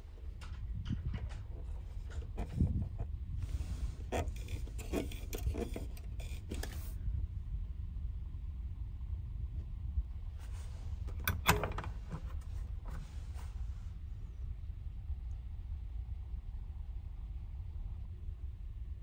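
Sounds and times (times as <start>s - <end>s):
ferry engines rumbling: 0.0s - 7.5s
metal shelf click and rattle: 0.3s - 6.9s, 11.1s - 13.0s
plastic knob clicking and scraping: 1.0s - 6.9s, 11.1s - 13.1s.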